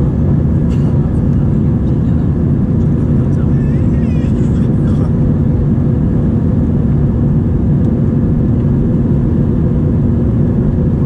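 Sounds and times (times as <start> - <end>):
airplane cabin engine noise: 0.0 - 11.0
steady low hum: 0.0 - 11.0.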